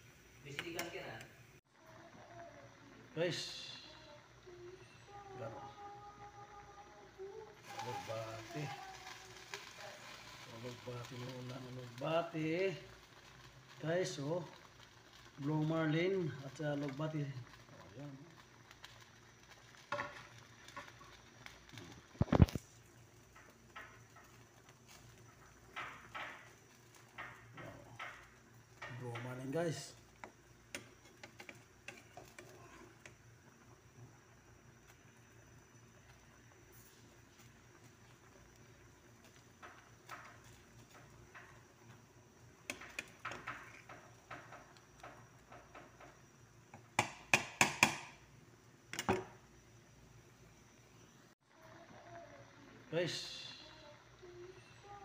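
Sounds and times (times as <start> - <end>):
soup boiling with soft pops: 0.0 - 55.0.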